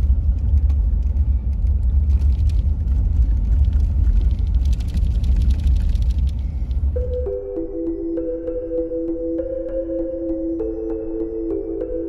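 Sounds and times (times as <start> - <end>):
wind buffeting microphone: 0.0 - 7.0.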